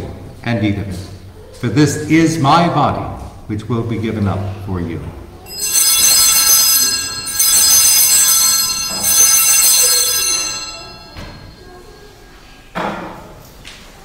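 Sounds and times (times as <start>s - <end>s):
altar bells ringing: 5.5s - 12.2s.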